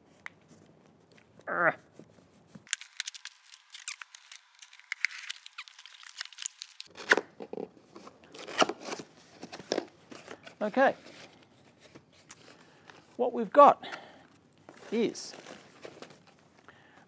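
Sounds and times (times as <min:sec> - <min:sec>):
packing tape tearing: 0:02.6 - 0:10.4
cardboard scraping and rustling: 0:07.9 - 0:12.2, 0:14.7 - 0:16.4.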